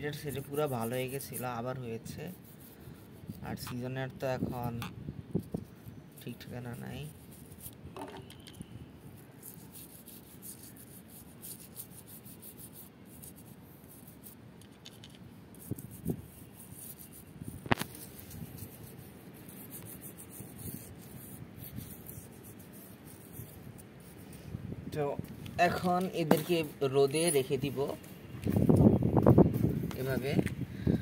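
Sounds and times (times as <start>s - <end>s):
toothbrush scrubbing a shell: 0.1s - 3.9s, 5.4s - 8.6s, 9.2s - 14.9s, 15.6s - 24.3s.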